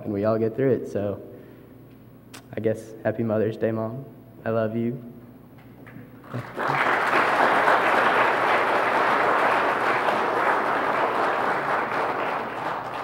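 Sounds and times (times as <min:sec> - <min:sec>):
congregation applauding: 0:06.2 - 0:13.0.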